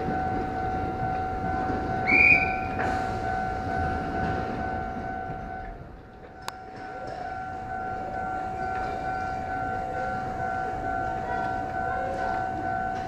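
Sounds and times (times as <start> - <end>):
electric train hum: 0.0 - 13.0
shrill whistle: 2.0 - 2.8.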